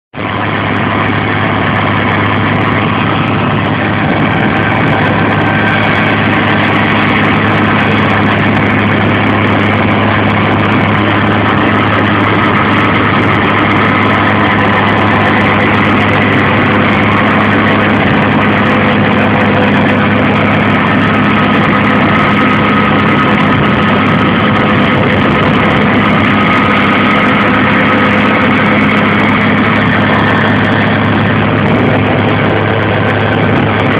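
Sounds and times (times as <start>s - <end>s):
tractor engine running: 0.1s - 33.9s.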